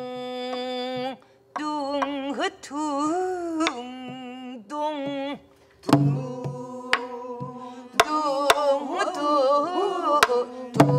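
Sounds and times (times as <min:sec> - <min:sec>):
woman singing: 0:00.0 - 0:10.9
barrel drum strokes: 0:05.9 - 0:08.2.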